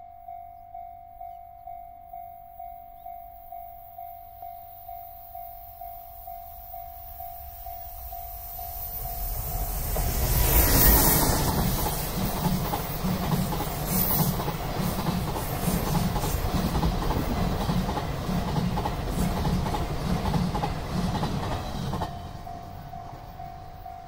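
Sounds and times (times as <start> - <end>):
level crossing warning bell: 0.0 - 9.9, 22.0 - 24.0
train wheels clickety-clack: 8.7 - 24.0.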